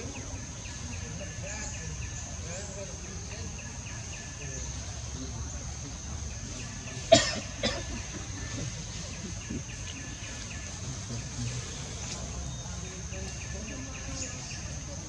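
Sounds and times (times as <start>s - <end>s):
high insect drone: 0.0s - 15.0s
short sharp coughs: 7.1s - 8.2s.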